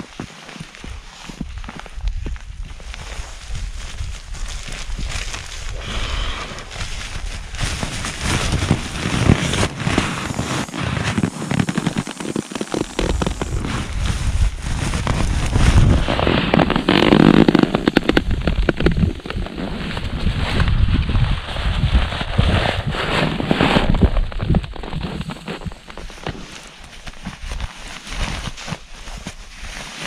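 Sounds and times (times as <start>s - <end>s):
nylon gear crinkling: 0.0s - 30.0s.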